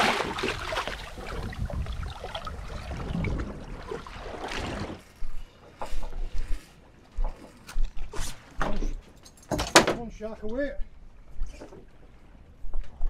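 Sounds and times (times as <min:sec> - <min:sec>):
wind rumbling on microphone: 0:00.0 - 0:05.4
water splashing and sloshing: 0:00.0 - 0:13.0.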